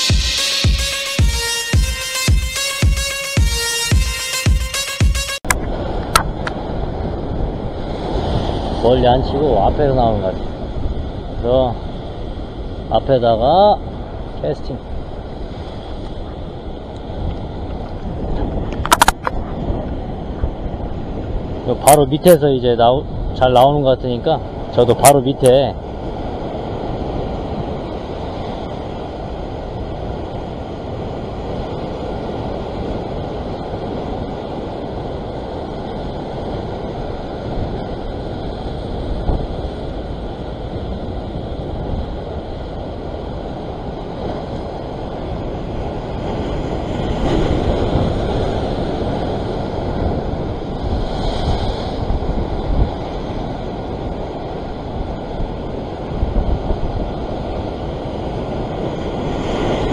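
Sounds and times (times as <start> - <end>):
surf washing against rocks: 5.5 - 59.9
wind buffeting microphone: 5.6 - 59.9.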